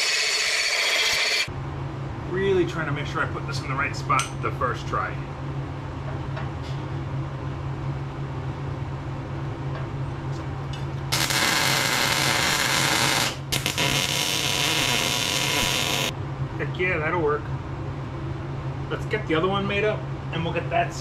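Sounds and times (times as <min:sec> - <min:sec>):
steady low hum: 0:01.4 - 0:21.0
arc welding crackling hiss: 0:11.1 - 0:16.1.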